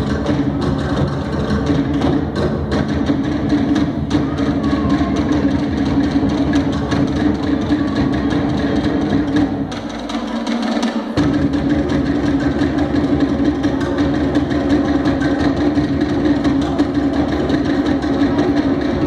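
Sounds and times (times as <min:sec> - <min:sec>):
deep drum tones: 0:00.0 - 0:19.0
rapid sharp wooden drum strokes: 0:00.0 - 0:19.0.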